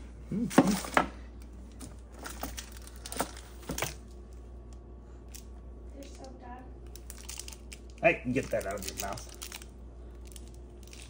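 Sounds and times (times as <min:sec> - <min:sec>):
snack wrapper crinkling: 0:06.8 - 0:11.0.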